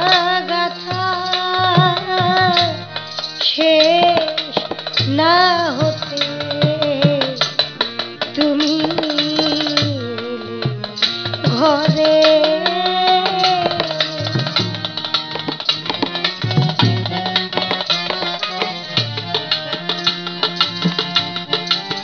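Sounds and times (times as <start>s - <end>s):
woman singing: 0.0s - 7.7s, 8.3s - 14.8s
hand drum beat: 0.0s - 22.0s
harmonium: 0.0s - 22.0s.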